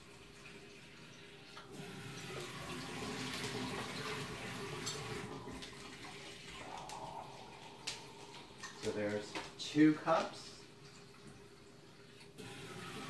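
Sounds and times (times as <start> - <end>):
water pouring into a container: 0.0 - 13.0.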